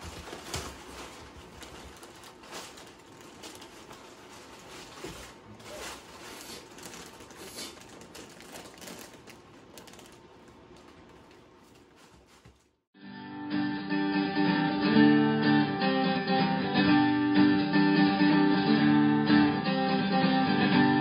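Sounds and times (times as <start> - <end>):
cats rustling plastic bags: 0.0 - 12.8.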